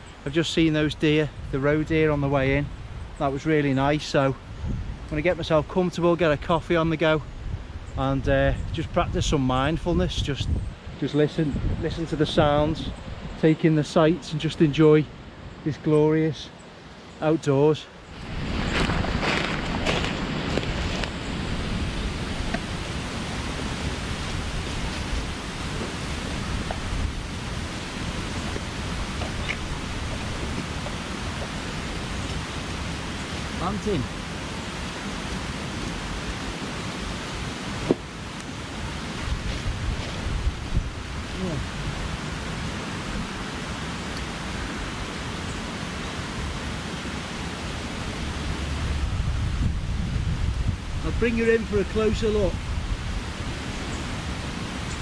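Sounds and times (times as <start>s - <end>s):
rushing woodland ambience: 0.0s - 55.0s
wind buffeting microphone: 4.4s - 5.4s, 7.3s - 13.4s, 18.1s - 43.6s, 48.1s - 55.0s.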